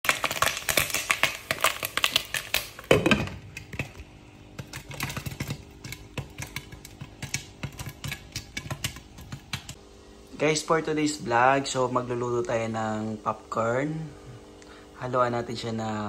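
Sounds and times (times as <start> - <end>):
popcorn popping in a pan: 0.0 - 9.8.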